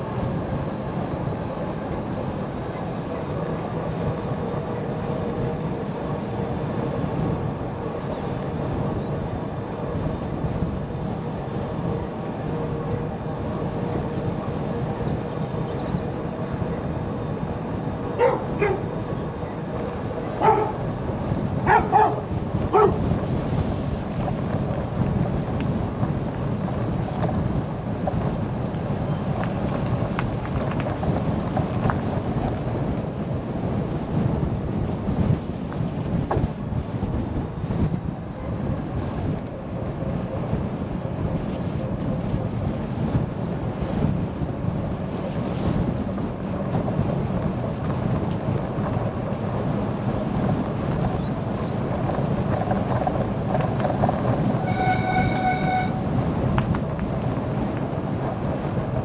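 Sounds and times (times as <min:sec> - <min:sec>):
wind and road rumble: 0:00.0 - 0:59.0
dog barking: 0:18.2 - 0:18.9, 0:20.4 - 0:20.8, 0:21.7 - 0:23.0.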